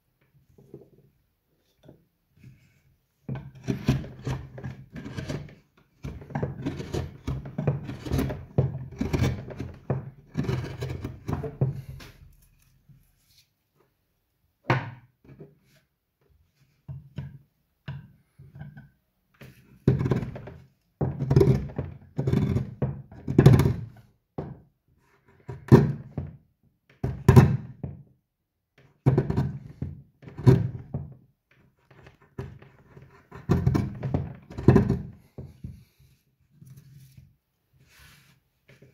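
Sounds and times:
chisel cut dull thunk: 3.3 - 12.1
gouge scraping wood: 3.4 - 12.2.

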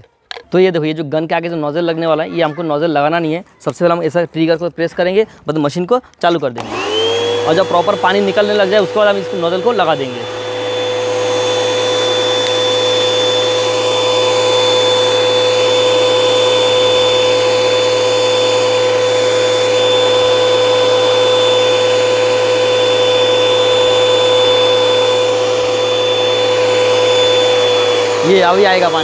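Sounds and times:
pressure washer running: 6.6 - 29.0.

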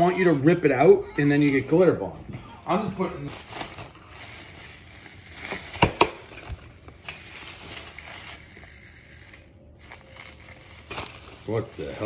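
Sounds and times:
plastic packaging crinkling: 3.2 - 12.0.

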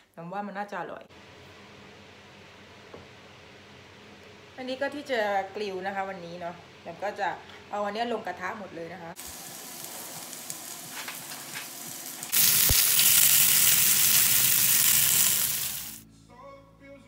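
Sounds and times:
vegetables sizzling in frying pan: 9.1 - 16.0.

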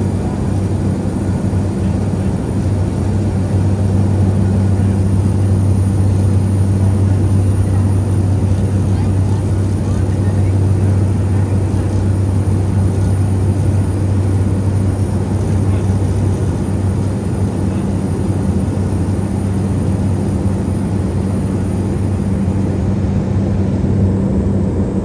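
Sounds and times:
airplane engine and propeller drone: 0.0 - 25.0.

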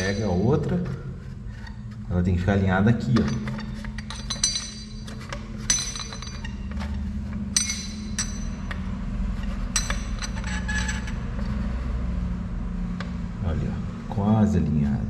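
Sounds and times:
metallic clinks of lock tumblers: 0.0 - 0.6, 3.1 - 8.8.

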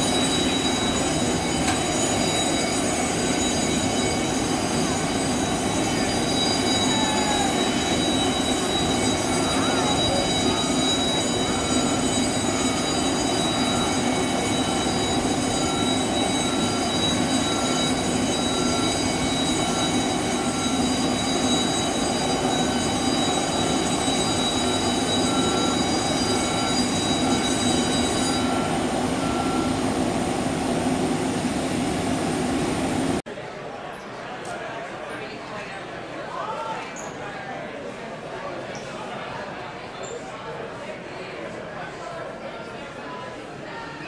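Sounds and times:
warning beeper: 0.0 - 30.5
jet turbine whine and hum: 0.0 - 33.2.

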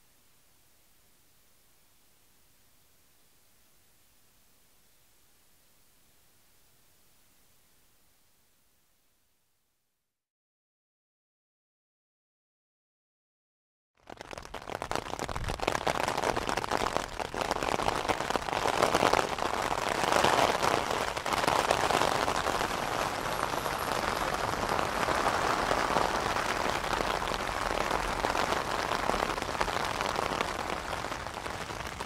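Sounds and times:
rain on tent fabric: 14.0 - 32.0.

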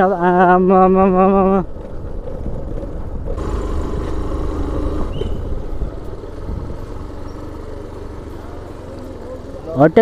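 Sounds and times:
motorcycle engine rumbling: 0.0 - 10.0
short high squeak: 5.0 - 5.6
wind on microphone: 5.0 - 7.0.

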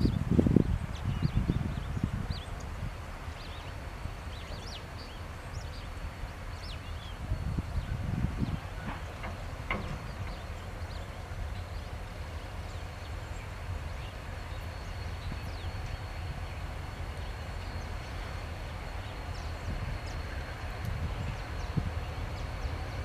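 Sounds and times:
diesel locomotive engines rumbling: 0.0 - 23.0.

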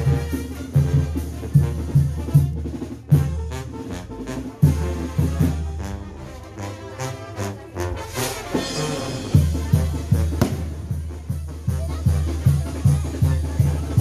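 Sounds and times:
low drum beat: 0.0 - 3.8, 8.5 - 14.0
brass horns playing: 0.0 - 14.0.

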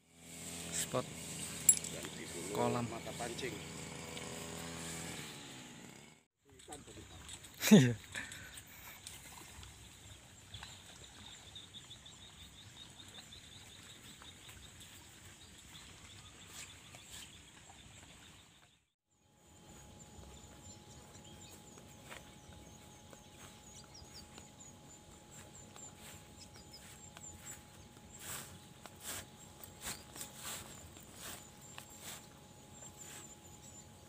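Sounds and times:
rapid high-pitched chirping calls: 23.4 - 34.0.

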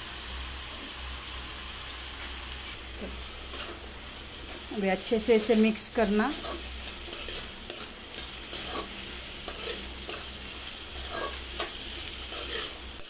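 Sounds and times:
frying sizzle: 0.0 - 13.0
metal spoon scraping a pan: 3.0 - 3.8, 4.4 - 13.0.

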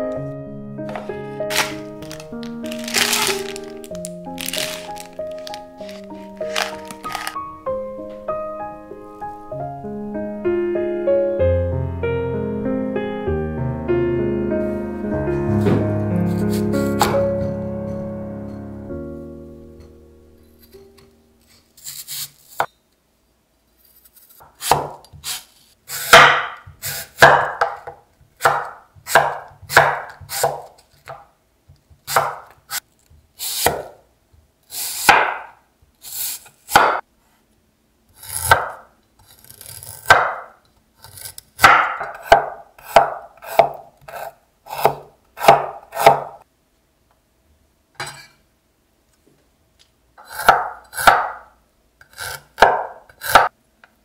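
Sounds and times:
knife slicing apple on board: 0.9 - 7.4, 15.6 - 17.2, 24.0 - 31.2, 32.1 - 32.8, 33.4 - 34.0, 34.8 - 35.5, 36.1 - 37.0, 38.2 - 38.8, 39.4 - 46.4, 50.2 - 51.4, 52.0 - 53.5.

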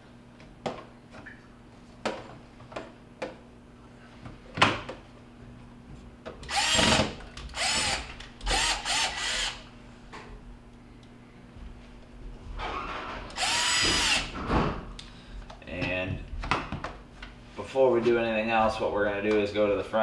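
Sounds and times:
cordless drill whirring: 6.4 - 9.7, 13.3 - 14.4.

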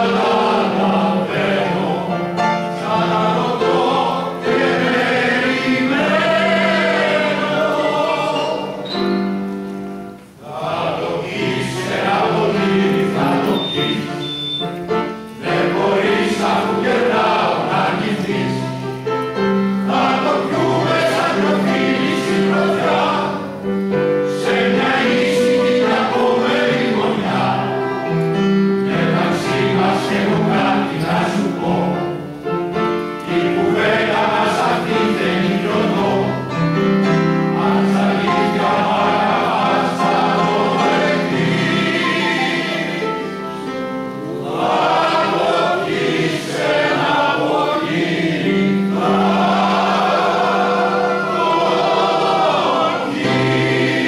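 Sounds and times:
men's choir singing in harmony: 0.0 - 54.0.

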